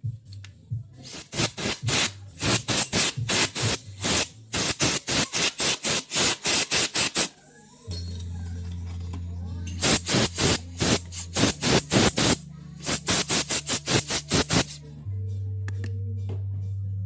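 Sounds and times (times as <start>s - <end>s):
air blow gun blasts: 1.0s - 7.3s, 9.8s - 14.8s.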